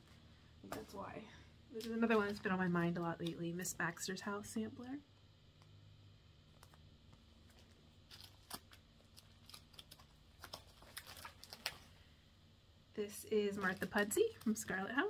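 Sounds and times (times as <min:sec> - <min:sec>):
low room hum: 0:00.0 - 0:15.0
paper rustling and tapping: 0:07.5 - 0:11.9.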